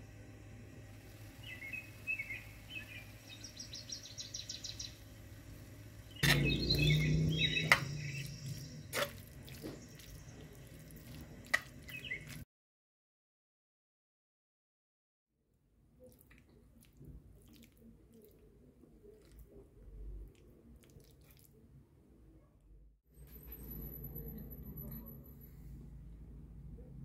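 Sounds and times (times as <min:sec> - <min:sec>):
faint chirping: 0:06.0 - 0:08.9
wet squelching of stirred pasta: 0:06.0 - 0:12.4, 0:16.0 - 0:21.8.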